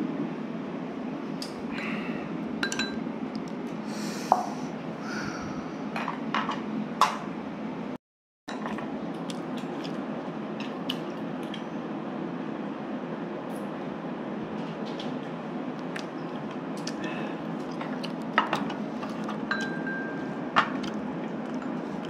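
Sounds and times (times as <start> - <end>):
steady low hum: 0.0 - 22.0
dishes and cutlery clinking: 2.6 - 3.0, 18.4 - 20.8.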